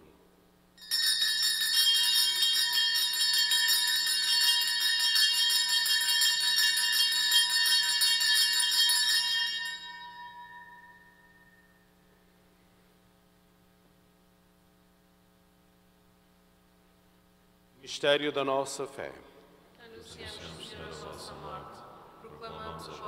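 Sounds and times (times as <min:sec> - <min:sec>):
small bells shaken: 0:00.8 - 0:11.8.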